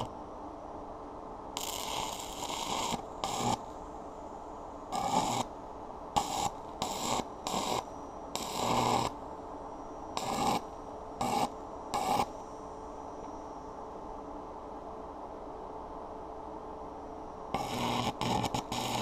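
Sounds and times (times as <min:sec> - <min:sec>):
arc welder crackling: 0:01.6 - 0:03.8, 0:04.9 - 0:05.5, 0:06.2 - 0:09.2, 0:10.2 - 0:12.3, 0:17.6 - 0:19.0.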